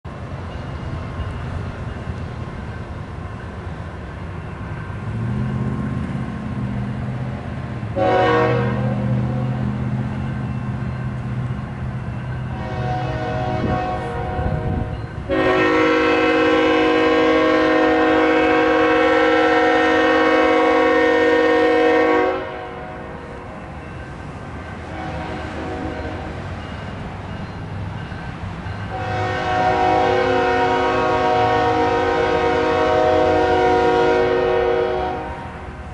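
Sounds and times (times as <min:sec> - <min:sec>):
train drone: 0:00.0 - 0:35.9
locomotive horn blasts: 0:08.0 - 0:09.6, 0:12.5 - 0:23.0, 0:24.8 - 0:26.4, 0:28.9 - 0:35.6.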